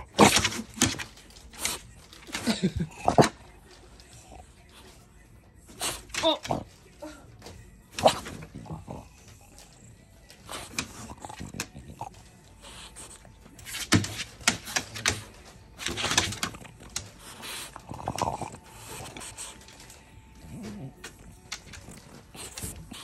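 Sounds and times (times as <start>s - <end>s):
dog scuffling: 7.7s - 23.0s.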